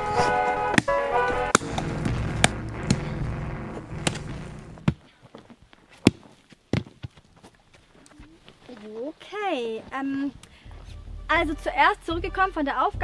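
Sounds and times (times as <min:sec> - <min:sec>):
music: 0:00.0 - 0:04.8, 0:10.5 - 0:13.0
low rumble: 0:01.5 - 0:04.9
sharp knocks and thuds: 0:01.5 - 0:05.0.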